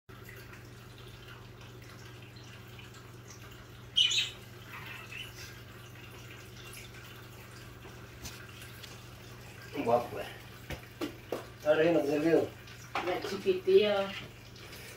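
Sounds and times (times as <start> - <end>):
budgerigars chirping: 4.0 - 5.4.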